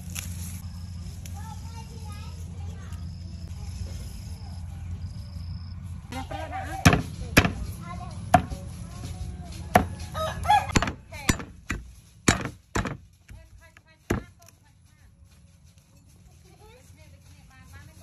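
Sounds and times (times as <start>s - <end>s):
cleaver chopping on wooden board: 6.9s - 7.7s, 8.3s - 8.6s, 9.8s - 10.1s, 10.7s - 13.0s, 14.1s - 14.3s.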